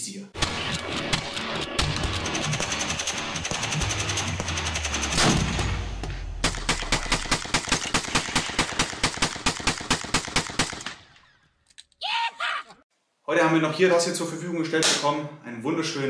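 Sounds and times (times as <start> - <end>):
rapid rifle fire: 0.4 - 11.1.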